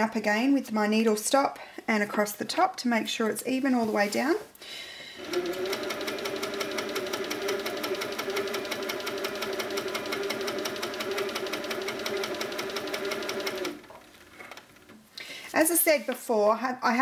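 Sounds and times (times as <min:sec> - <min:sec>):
quilting machine motor humming: 0:05.2 - 0:14.8.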